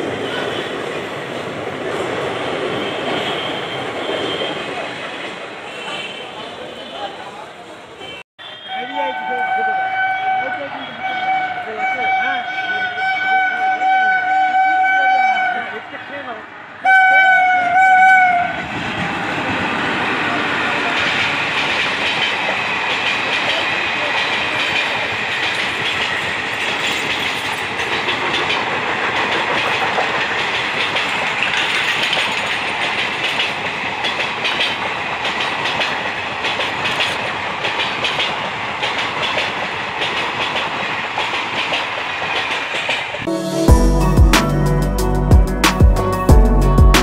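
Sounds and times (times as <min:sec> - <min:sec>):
train wheels clattering over rails: 0:18.7 - 0:43.3.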